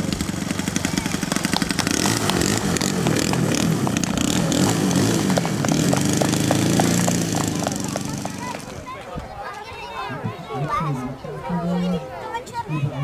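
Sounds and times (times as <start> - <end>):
model airplane engine running: 0.0 - 8.8.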